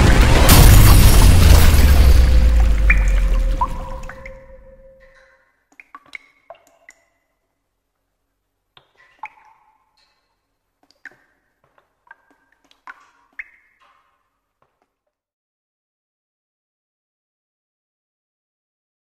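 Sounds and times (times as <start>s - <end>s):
loud boom: 0.0s - 5.0s
water dripping with pings: 2.4s - 7.6s, 8.8s - 14.4s.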